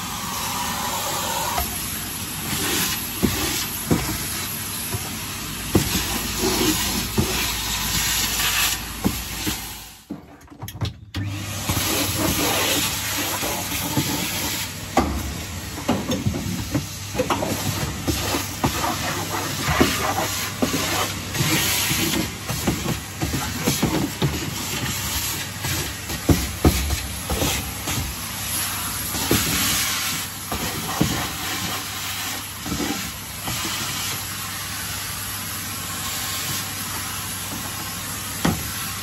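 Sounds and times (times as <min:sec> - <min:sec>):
vacuum cleaner running: 0:00.0 - 0:10.2, 0:11.1 - 0:39.0
grit clicking up vacuum hose: 0:00.2 - 0:34.6.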